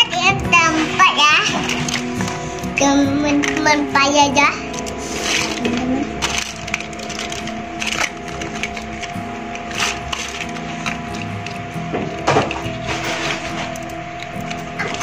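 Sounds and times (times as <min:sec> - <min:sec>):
plastic toy pieces rattling: 0:04.7 - 0:11.6.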